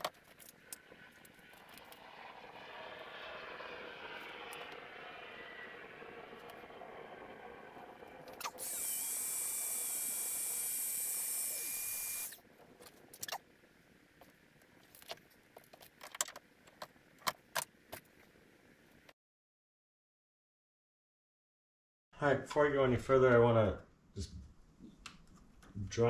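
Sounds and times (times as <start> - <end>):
heat gun blowing: 8.4 - 12.4
wires and connectors clicking: 14.8 - 18.1.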